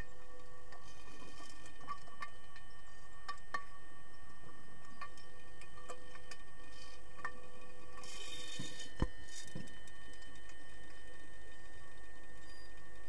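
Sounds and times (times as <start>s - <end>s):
low underwater hum: 0.0s - 13.0s.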